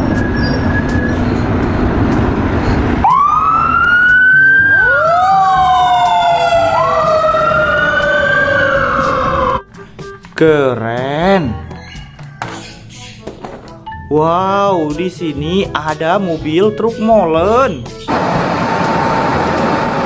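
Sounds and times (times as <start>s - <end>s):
loud rough rumble: 0.0s - 3.1s, 18.1s - 20.0s
fire engine siren wailing: 2.8s - 9.7s, 18.1s - 20.0s.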